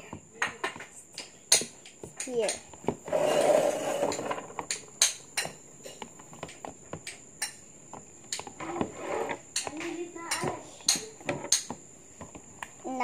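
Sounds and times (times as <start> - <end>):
spatula clicking on plastic tub: 9.5 - 12.8.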